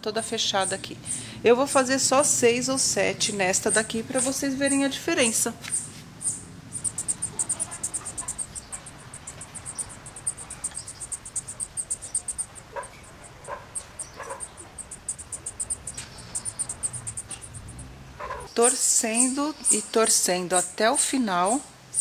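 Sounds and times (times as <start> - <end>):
cricket chirping: 5.7 - 18.5.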